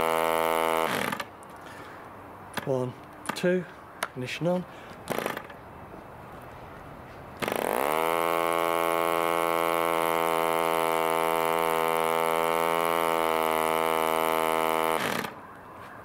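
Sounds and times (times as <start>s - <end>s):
model aero engine running: 7.5s - 15.3s.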